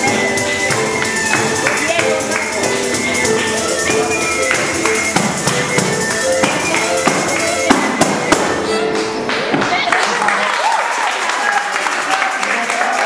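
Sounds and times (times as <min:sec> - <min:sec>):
wind instrument melody: 0:00.0 - 0:09.5
frame drum beat: 0:00.0 - 0:09.9.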